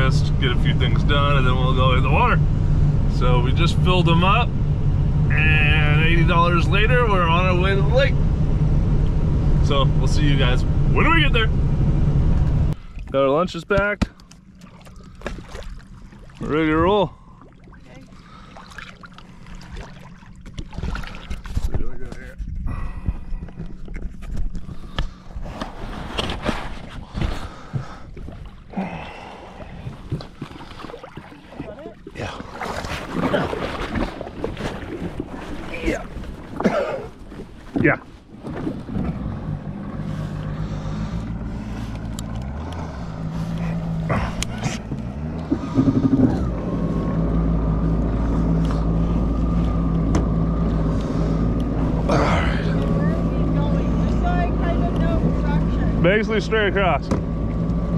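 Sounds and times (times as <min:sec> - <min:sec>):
thin engine whine: 0:00.0 - 0:12.8, 0:38.4 - 0:57.9
low rumble: 0:00.0 - 0:13.3, 0:14.4 - 0:57.9
jet ski engine running: 0:00.0 - 0:57.9
knocks and bumps: 0:44.6 - 0:46.6.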